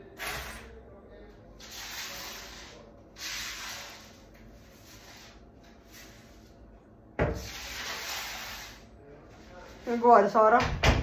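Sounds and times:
rubbing and scraping: 0:07.4 - 0:10.2
sudden knock: 0:10.6 - 0:11.0.

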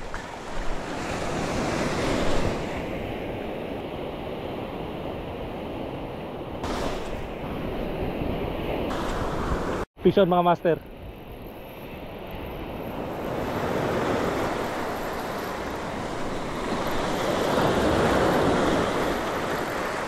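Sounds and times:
surf washing up a stony beach: 0:12.8 - 0:20.0.

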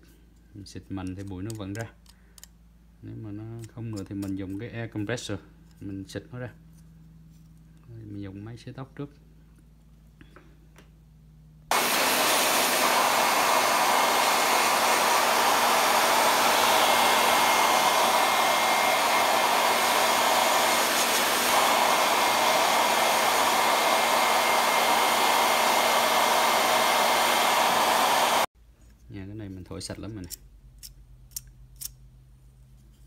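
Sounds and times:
hair dryer blowing: 0:11.7 - 0:28.5.

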